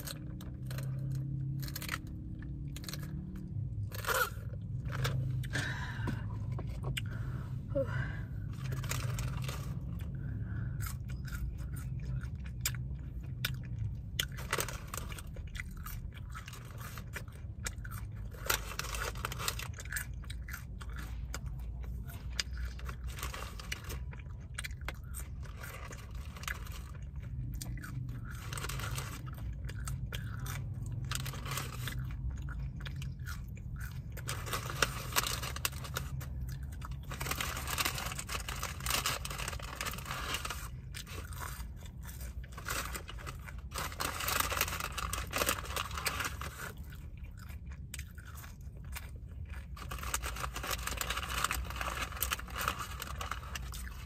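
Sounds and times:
close chewing and crunching: 0.0s - 54.0s
steady low hum: 0.0s - 54.0s
paper wrapper crackling: 34.2s - 46.9s, 49.8s - 54.0s.

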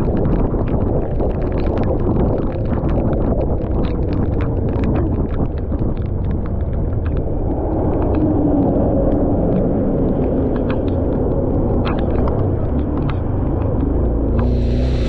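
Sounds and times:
raindrops ticking on camera: 0.0s - 15.0s
wind and spray rumble on mic: 0.0s - 15.0s
motorcycle engine: 14.4s - 15.0s.

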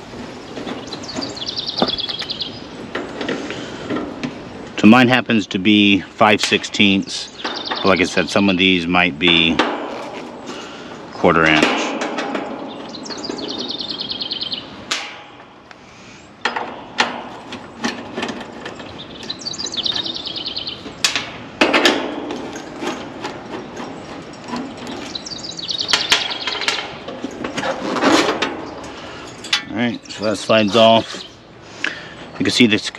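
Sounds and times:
sharp metal knocks: 0.6s - 2.3s, 9.2s - 10.2s, 11.4s - 13.8s, 14.8s - 15.6s, 16.4s - 20.2s, 20.8s - 29.9s.

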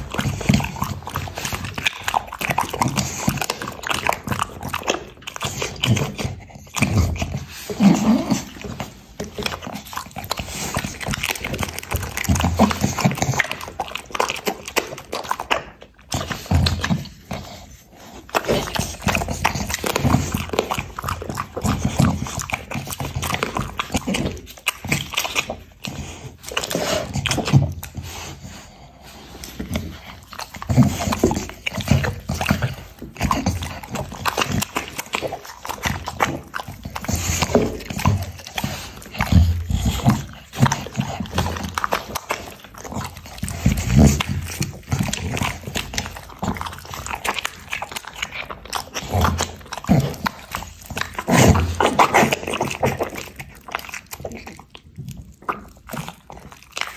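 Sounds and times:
dog chewing and lip smacking: 0.0s - 56.9s.

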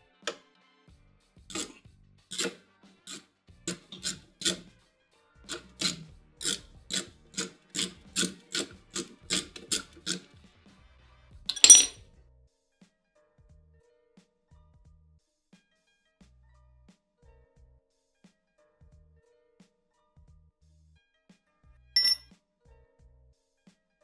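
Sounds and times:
ratcheting wrench clicking: 1.5s - 1.7s, 2.3s - 4.7s, 5.5s - 10.2s, 11.5s - 11.9s, 22.0s - 22.2s
metallic clink: 11.5s - 12.0s, 22.0s - 22.2s.

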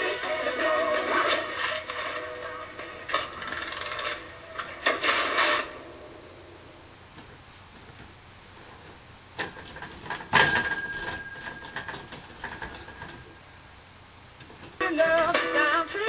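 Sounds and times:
knocks and creaks: 7.1s - 13.4s.

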